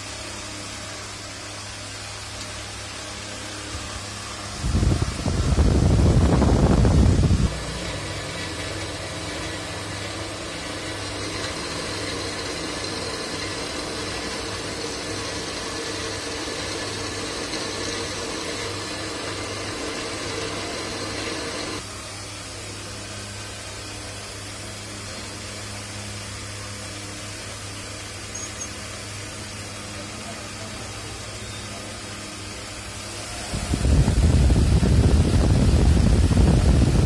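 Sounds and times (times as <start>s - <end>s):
metal lathe humming: 5.9s - 21.9s
hiss: 10.6s - 21.8s.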